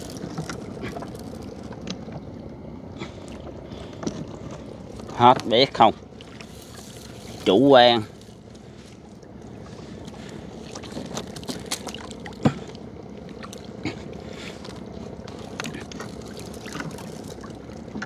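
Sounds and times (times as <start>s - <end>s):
water dripping and splashing: 0.0s - 18.0s.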